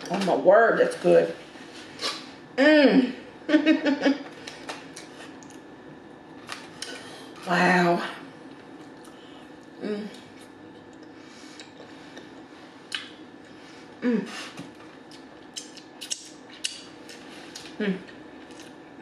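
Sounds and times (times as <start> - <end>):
wet chewing and mouth smacks: 8.4 - 13.2, 15.0 - 17.8
person humming mm: 14.0 - 14.6, 17.8 - 18.1.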